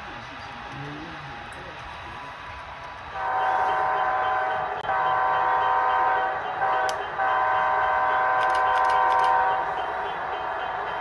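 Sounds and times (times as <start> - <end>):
model locomotive horn chord: 3.2 - 11.0.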